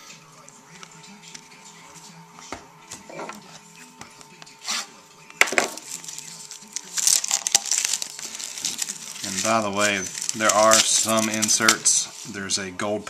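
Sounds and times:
wrapper crinkling and tearing: 5.4 - 12.3.

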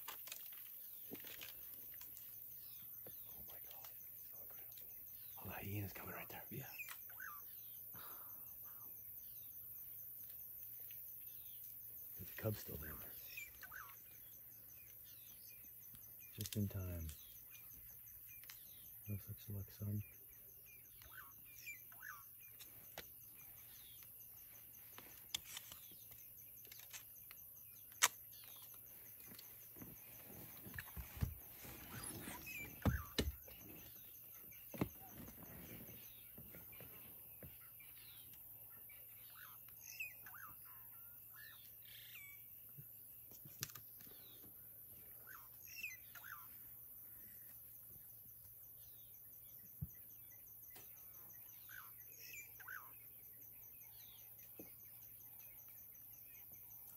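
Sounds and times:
short bird chirps: 27.8 - 36.3
rustling: 28.5 - 32.8.

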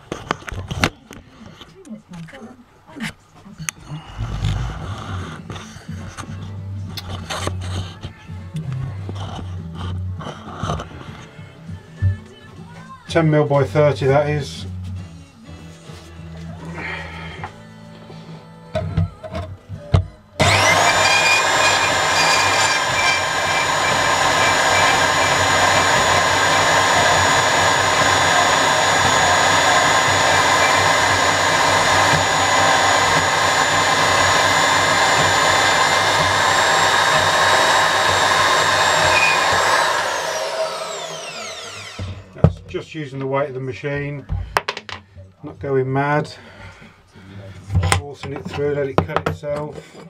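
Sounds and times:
bandsaw motor whine: 20.4 - 42.3.

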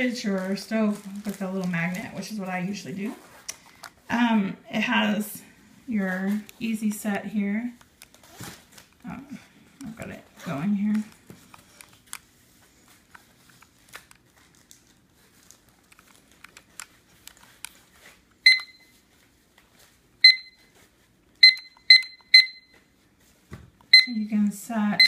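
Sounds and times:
kitchen timer beeps: 18.4 - 18.9, 20.2 - 20.7, 21.4 - 22.8, 23.9 - 25.0.

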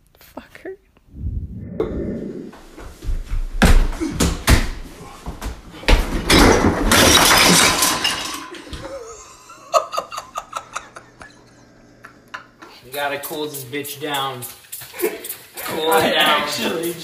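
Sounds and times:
bottles rattling in fridge door: 5.9 - 8.9.

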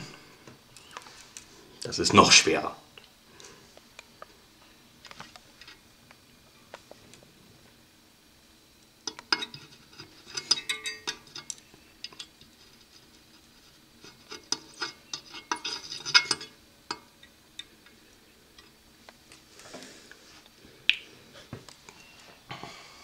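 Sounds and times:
metallic clicks and scrapes: 9.1 - 17.0.

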